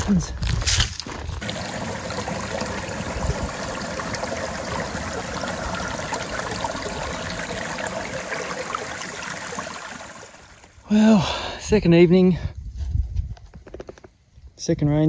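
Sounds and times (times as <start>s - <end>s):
creek trickling over rocks: 1.2s - 10.9s.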